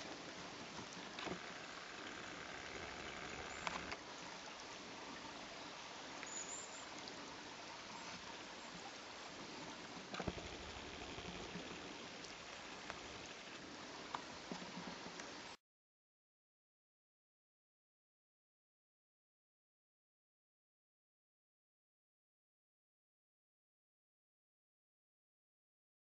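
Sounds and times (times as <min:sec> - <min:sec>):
faint clicks and knocks: 0:00.0 - 0:04.0, 0:10.1 - 0:15.3.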